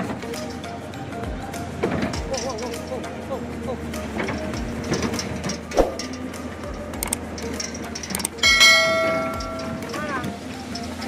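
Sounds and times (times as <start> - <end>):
low steady hum: 3.7 - 10.9
bell-like ring: 8.4 - 10.0.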